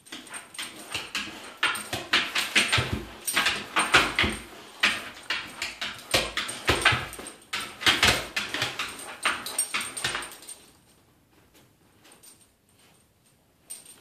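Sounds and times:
dog claws scraping on bathtub: 0.1s - 10.4s.

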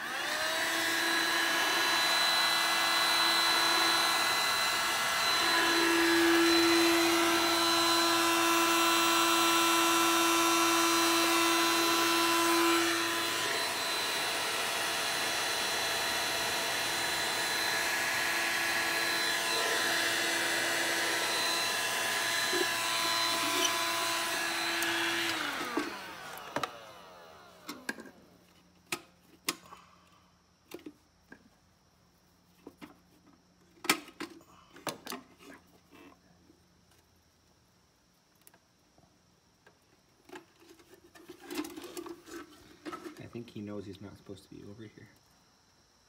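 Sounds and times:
heat gun blower whining: 0.0s - 28.2s.

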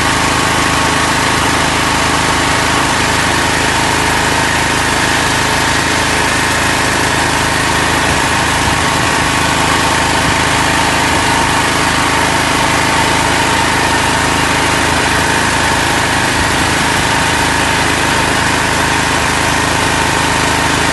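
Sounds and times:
engine running steadily: 0.0s - 20.9s.

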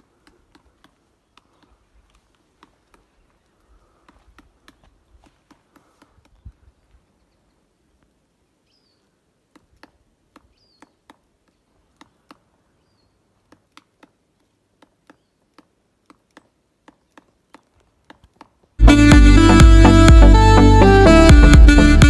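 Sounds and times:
woodpecker knocking on wood: 9.5s - 12.5s.

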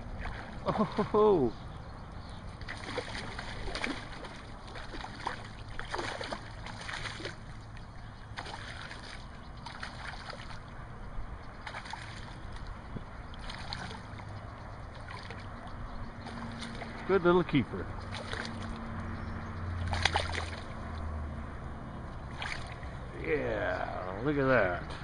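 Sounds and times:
water sloshing: 0.0s - 21.4s, 22.0s - 23.1s
fish splashing at surface: 2.6s - 7.5s, 8.4s - 10.7s, 11.6s - 12.6s, 13.4s - 14.3s, 18.1s - 18.9s, 19.8s - 20.8s, 22.3s - 22.9s.

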